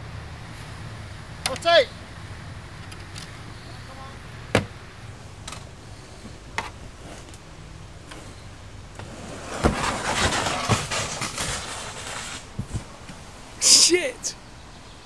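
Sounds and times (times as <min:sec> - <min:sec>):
hull scraping over earth: 0:06.0 - 0:13.9
heavy thumps: 0:09.5 - 0:13.2.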